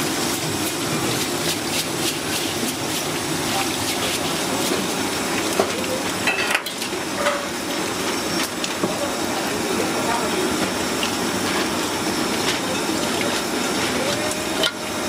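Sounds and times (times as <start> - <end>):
tap water running: 0.0 - 15.0
steel wool scrubbing shells: 0.5 - 5.6.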